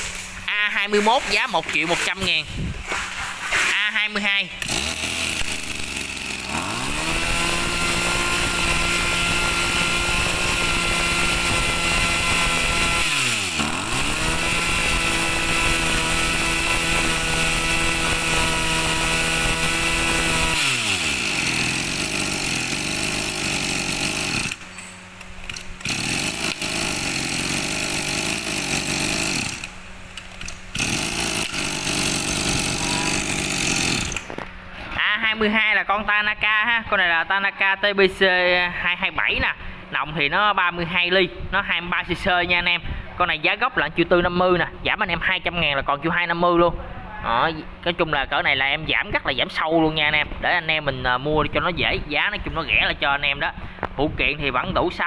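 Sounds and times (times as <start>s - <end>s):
brush cutter engine revving: 0.0s - 35.0s.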